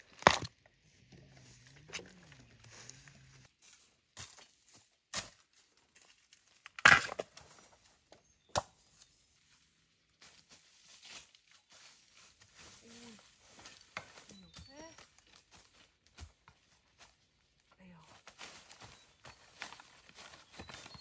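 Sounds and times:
bamboo shoots cracking: 0:00.0 - 0:00.6.

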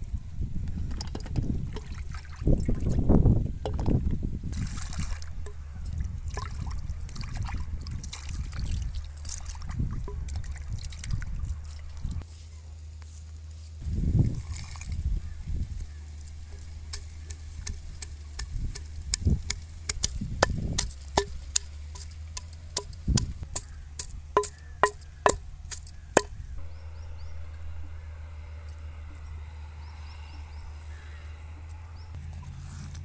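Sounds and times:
low hum: 0:00.0 - 0:33.0
pestle pounding in stone mortar: 0:16.6 - 0:26.4.

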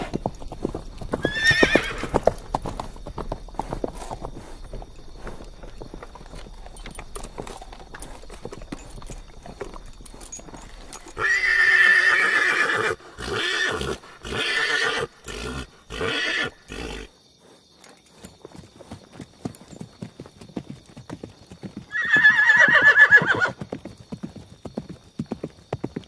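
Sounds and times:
horse hooves clip-clopping: 0:00.0 - 0:26.0
horse whinnying: 0:01.1 - 0:02.4, 0:10.9 - 0:17.1, 0:21.9 - 0:23.6.

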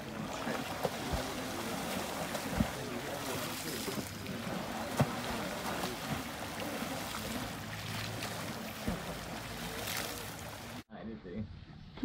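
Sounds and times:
water sloshing and spraying: 0:00.0 - 0:10.8.

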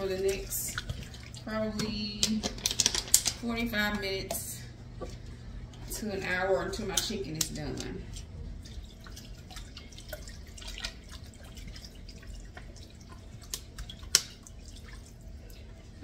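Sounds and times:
water trickling into a pan: 0:08.6 - 0:16.0.

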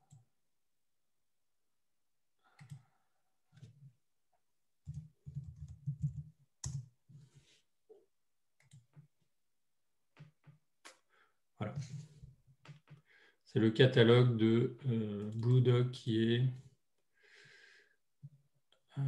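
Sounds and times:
typing on computer keyboard: 0:04.8 - 0:06.9.

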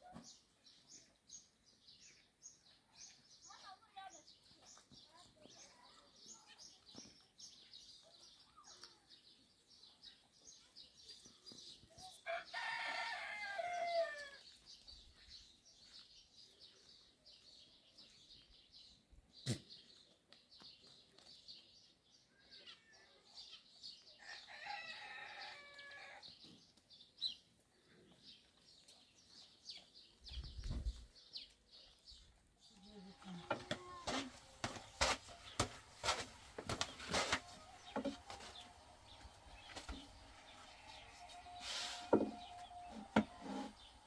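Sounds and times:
small birds chirping: 0:00.0 - 0:12.6, 0:13.6 - 0:44.0
rooster crowing: 0:12.3 - 0:14.4, 0:24.2 - 0:26.2.

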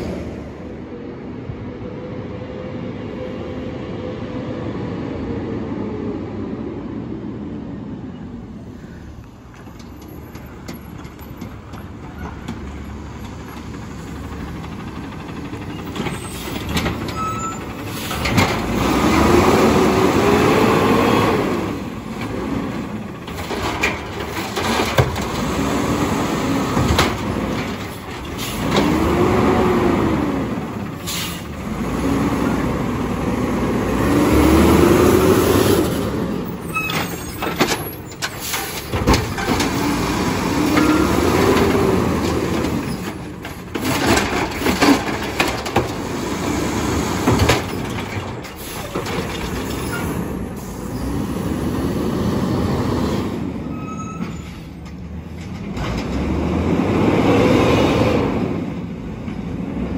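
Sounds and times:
truck engine and hydraulic whine: 0:00.0 - 0:59.9
metal clanks of carts and arm: 0:09.5 - 0:19.2, 0:22.0 - 0:25.9, 0:26.5 - 0:29.1, 0:36.4 - 0:50.4, 0:53.8 - 0:56.4
air brakes hissing: 0:15.9 - 0:18.4, 0:31.0 - 0:31.6, 0:38.1 - 0:39.0, 0:48.5 - 0:49.1, 0:49.7 - 0:51.4.

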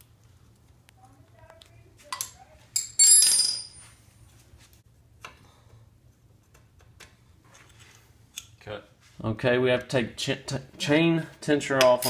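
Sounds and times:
metal tools clinking: 0:02.1 - 0:04.0, 0:11.8 - 0:12.0.

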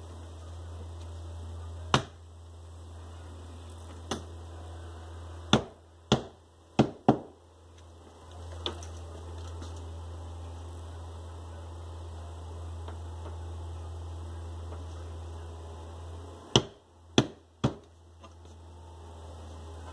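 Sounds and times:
hammer knocking tacks into wood: 0:05.5 - 0:07.3, 0:16.5 - 0:17.9.

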